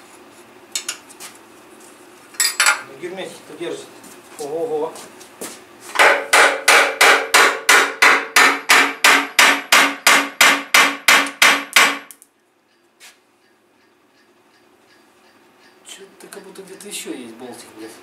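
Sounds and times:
hammer striking metal pan: 6.0 - 12.0.

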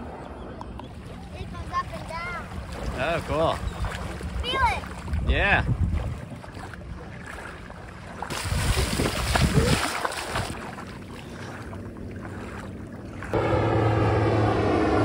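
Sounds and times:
propeller plane engine drone: 0.0 - 1.6, 10.6 - 15.0
seawater splashing: 0.0 - 15.0.

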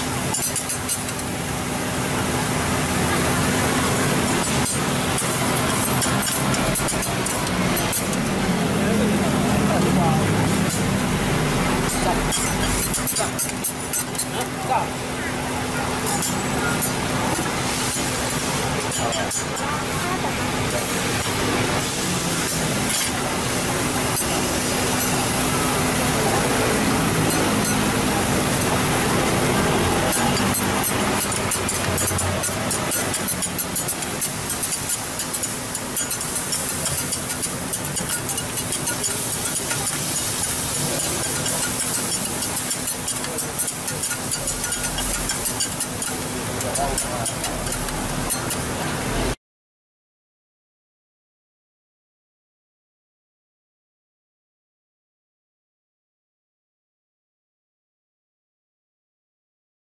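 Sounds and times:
steady sizzle: 0.0 - 49.4
metal spatulas scraping griddle: 0.1 - 1.4, 2.0 - 14.6, 15.8 - 49.4
metal spatulas clinking: 30.1 - 48.6.

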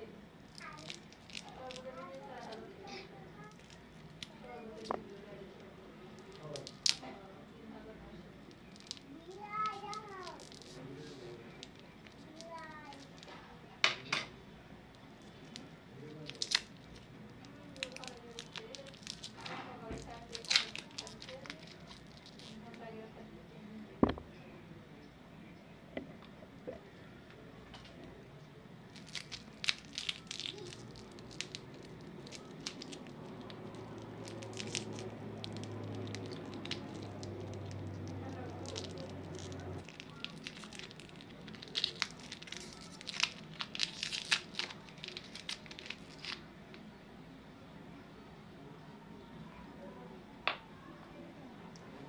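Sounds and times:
foil wrapper crinkling: 0.5 - 2.7, 6.2 - 7.2, 8.4 - 13.4, 15.2 - 22.9, 28.9 - 46.5
scissors snipping plastic wrapper: 17.8 - 22.5.

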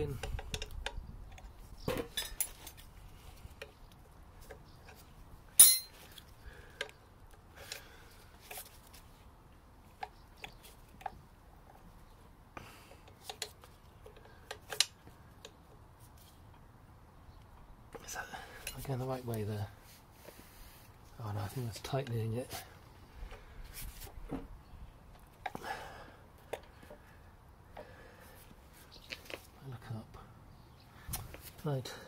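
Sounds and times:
hand tool clinking on metal: 5.6 - 6.0.

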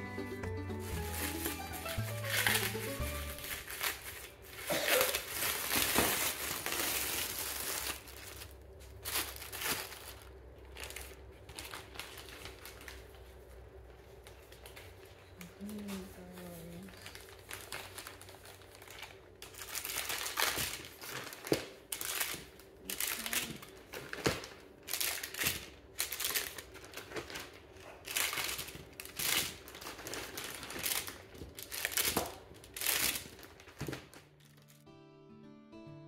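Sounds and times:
plucked guitar background music: 0.0 - 3.6, 34.3 - 36.0
plastic bag crinkling: 0.8 - 34.8.

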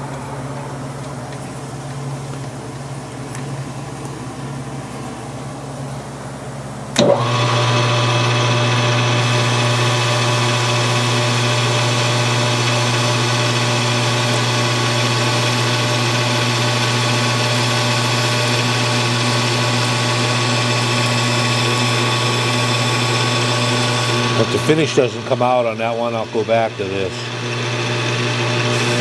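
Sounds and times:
lathe running with gear whine: 7.0 - 29.0.

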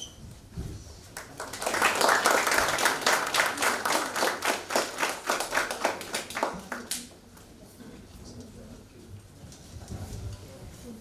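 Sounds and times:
audience applauding: 1.2 - 7.1.

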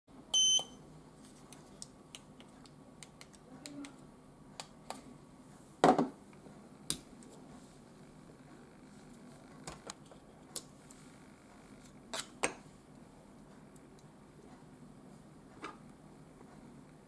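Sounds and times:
short electronic beep: 0.3 - 0.8.

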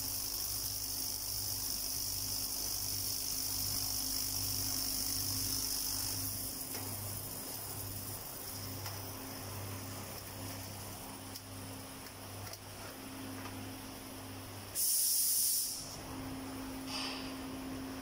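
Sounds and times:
compressed air hiss: 14.7 - 16.0, 16.8 - 17.4.

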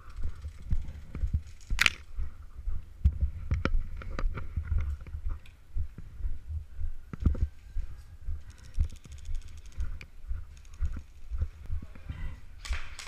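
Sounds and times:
gear clicking: 8.4 - 11.3.

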